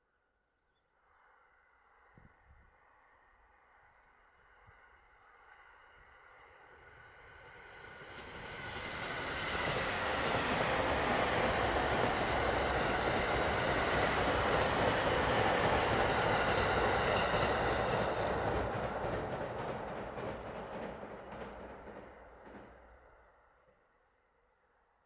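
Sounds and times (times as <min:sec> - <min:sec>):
train wheels on rails: 0:07.4 - 0:23.0.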